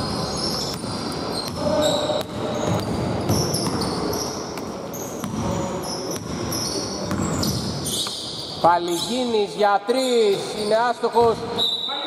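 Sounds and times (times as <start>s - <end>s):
sneakers squeaking on wood: 0.0s - 9.2s
basketball dribbling on hardwood: 5.2s - 5.5s, 6.1s - 7.7s.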